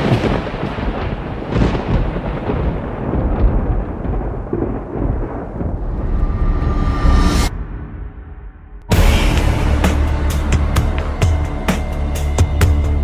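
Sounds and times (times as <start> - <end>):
deep noisy rumble: 3.0 - 13.0.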